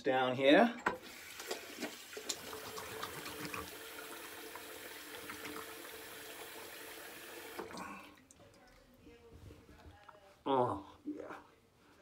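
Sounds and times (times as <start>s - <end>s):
sink tap running: 0.8s - 7.8s.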